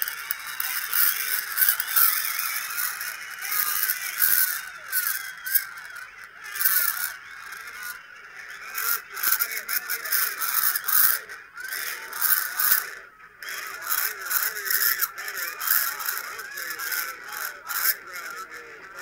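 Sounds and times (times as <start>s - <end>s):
crowd screaming and shouting: 0.0s - 12.9s.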